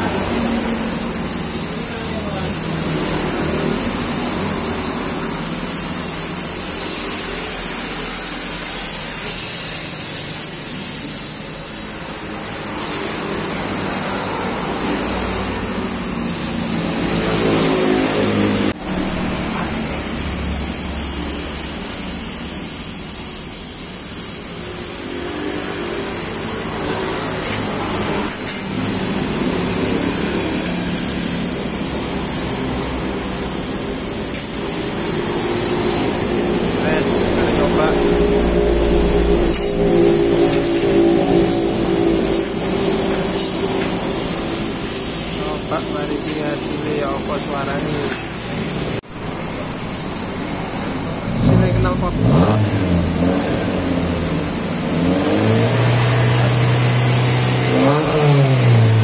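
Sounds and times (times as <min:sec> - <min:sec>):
car engine revving: 0:11.9 - 0:59.0
steady high-pitched hiss: 0:19.3 - 0:52.2.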